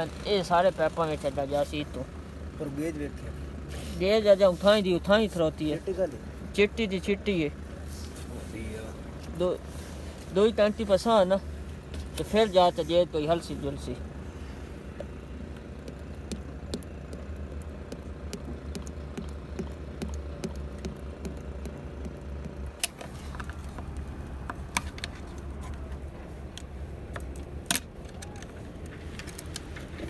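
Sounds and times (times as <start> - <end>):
low engine hum: 0.0 - 30.0.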